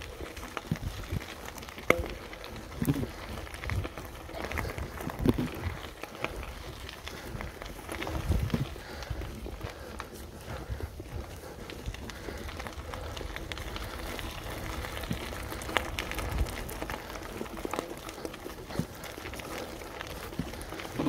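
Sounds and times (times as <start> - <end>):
bike clicks and rattles: 0.0 - 21.0.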